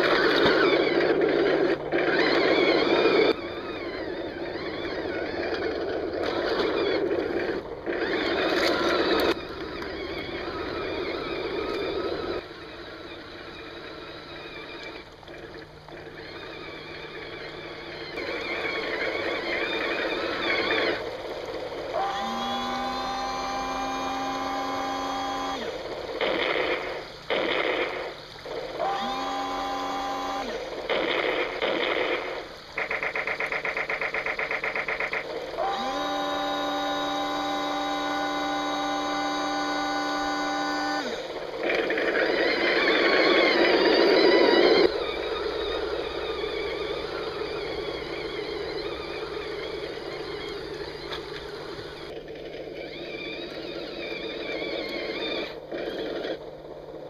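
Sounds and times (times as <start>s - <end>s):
rising pitched whine: 0.0s - 57.0s
toy tank motors whirring: 0.0s - 57.0s.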